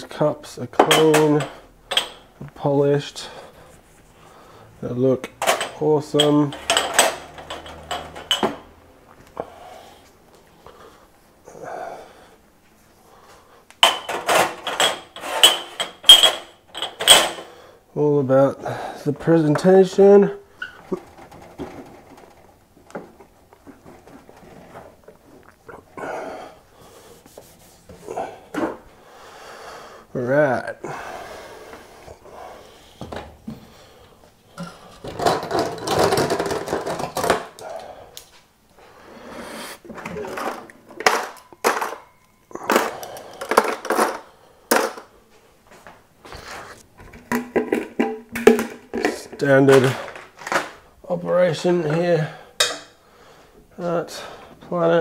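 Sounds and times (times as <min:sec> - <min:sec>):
cups clicking and knocking: 0:00.8 - 0:02.3, 0:05.3 - 0:09.4, 0:13.8 - 0:17.4, 0:47.0 - 0:50.7.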